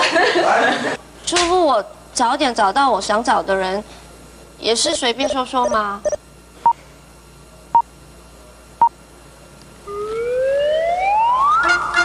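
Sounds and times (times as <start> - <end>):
short electronic beeps: 5.2 - 6.2.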